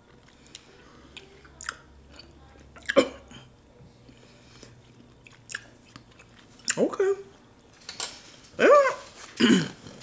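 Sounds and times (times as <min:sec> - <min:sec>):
people chewing pickles: 0:00.0 - 0:07.1
mouth clicks and smacks: 0:01.6 - 0:01.8, 0:05.2 - 0:06.8.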